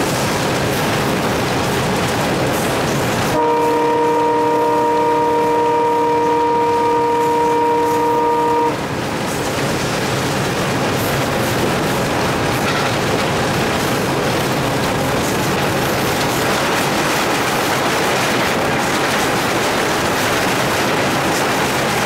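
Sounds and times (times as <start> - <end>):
locomotive running noise: 0.0 - 22.0
locomotive horn blast: 3.3 - 8.8
wheels on rails: 9.0 - 22.0.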